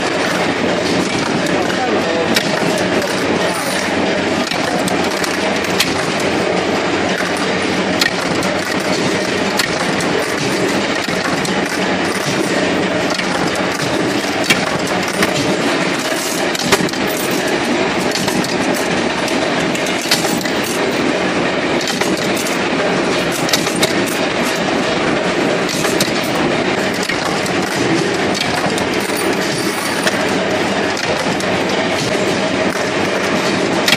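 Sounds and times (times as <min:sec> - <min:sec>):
metalworking machines clattering: 0:00.0 - 0:33.9
sharp metal clicks: 0:07.1 - 0:17.4.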